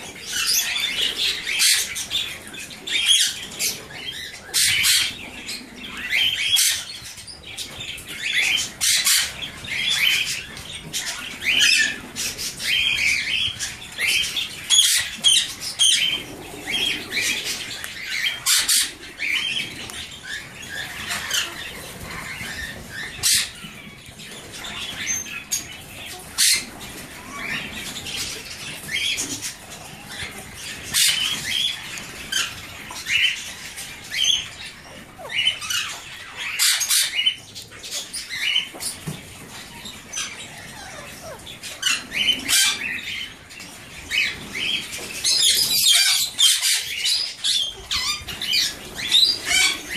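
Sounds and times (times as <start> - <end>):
parakeets chirping and squawking: 0.0 - 49.9.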